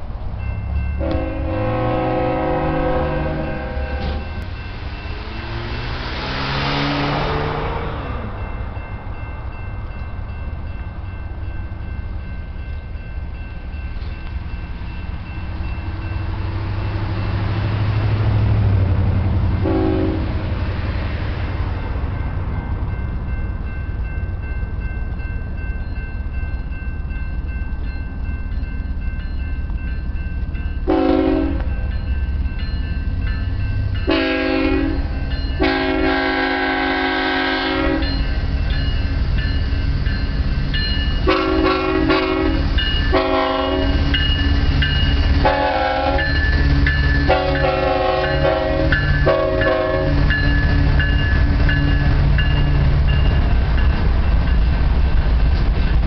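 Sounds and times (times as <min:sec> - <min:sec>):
locomotive engines rumbling: 0:00.0 - 0:56.0
multi-chime air horn blasts: 0:01.0 - 0:05.6, 0:19.6 - 0:20.3, 0:30.9 - 0:31.7, 0:34.0 - 0:38.3, 0:41.2 - 0:44.4, 0:45.4 - 0:50.6.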